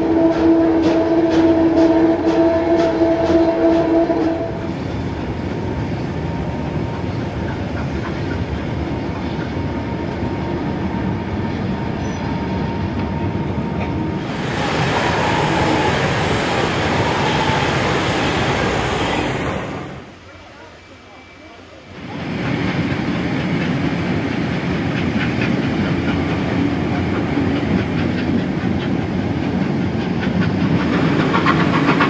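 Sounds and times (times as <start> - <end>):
train whistle: 0.0 - 4.8, 14.2 - 20.0
train wheels clattering on rails: 0.0 - 20.0, 22.1 - 32.0
rushing noise of passing train: 0.0 - 32.0.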